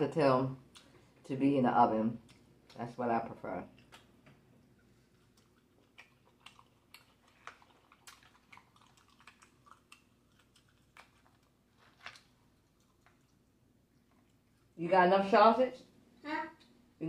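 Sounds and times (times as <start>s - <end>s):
wet chewing and lip smacks: 0.7s - 1.2s, 2.2s - 2.8s, 3.7s - 14.8s.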